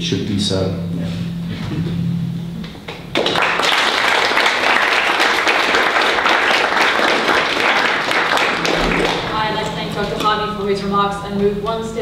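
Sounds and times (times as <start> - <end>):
audience applauding: 2.9 - 10.3.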